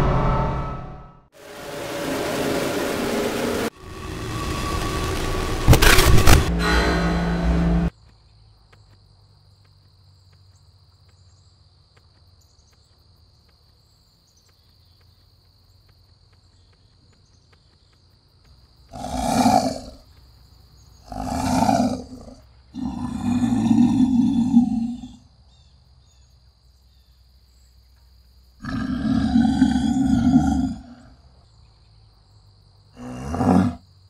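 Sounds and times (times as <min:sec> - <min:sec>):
loud intro sound: 0:00.0 - 0:07.9
tiger roaring: 0:18.9 - 0:20.0, 0:21.0 - 0:25.2, 0:28.6 - 0:31.2, 0:33.0 - 0:33.8.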